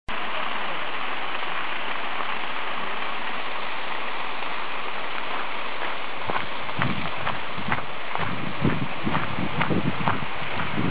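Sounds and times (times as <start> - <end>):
stream running water: 0.1 - 10.9
footsteps on gravel: 4.4 - 10.9.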